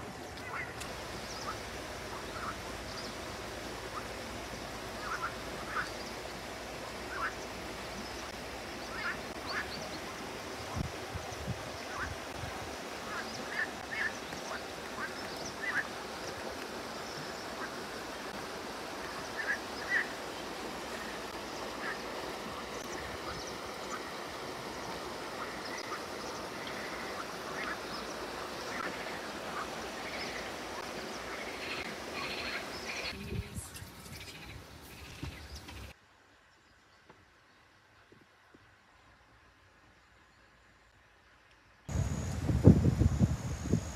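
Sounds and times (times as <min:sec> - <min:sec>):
river running: 0:00.0 - 0:43.9.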